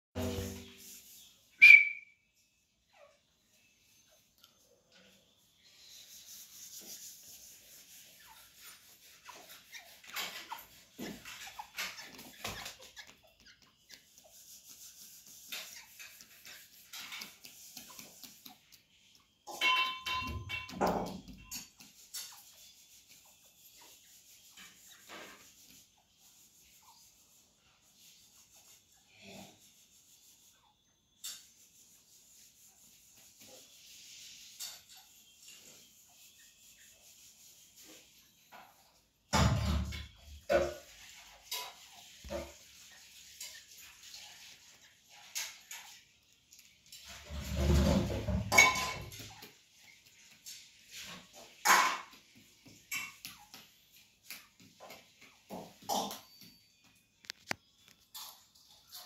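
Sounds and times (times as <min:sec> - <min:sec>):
birds chirping softly: 0:00.6 - 0:59.0
birds pecking on cement floor: 0:04.2 - 0:39.0, 0:40.0 - 0:59.0
birds pecking on concrete: 0:05.0 - 0:27.2.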